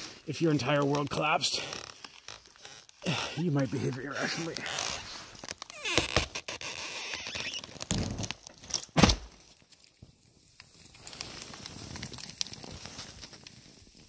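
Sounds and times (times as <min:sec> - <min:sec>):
wood cracking and splitting: 0:00.6 - 0:10.0, 0:10.6 - 0:13.8
snow pouring from branches: 0:10.2 - 0:14.0.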